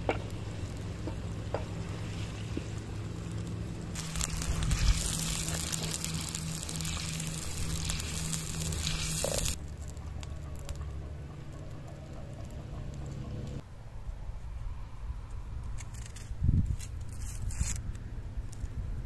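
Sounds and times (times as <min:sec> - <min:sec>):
fire crackling and hissing: 0:00.0 - 0:13.6, 0:15.6 - 0:19.0
low steady hum: 0:00.0 - 0:17.3.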